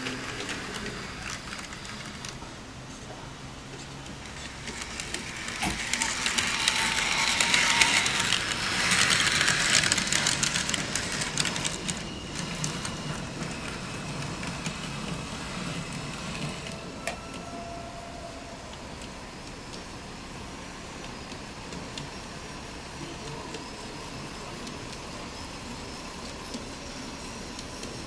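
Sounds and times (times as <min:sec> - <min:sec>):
wheels clicking over rail joints: 0:03.8 - 0:17.4
model tram motor whirring: 0:04.0 - 0:17.8.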